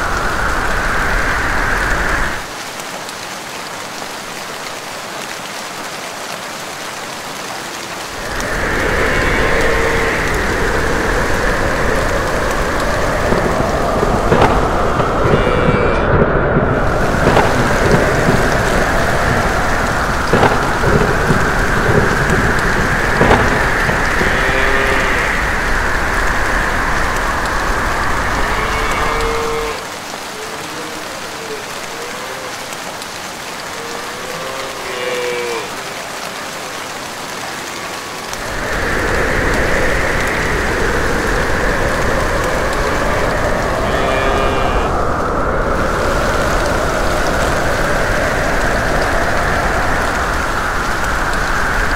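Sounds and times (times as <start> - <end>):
heavy rain: 0.0 - 51.9
thunder cracking: 8.1 - 29.8, 38.4 - 51.4.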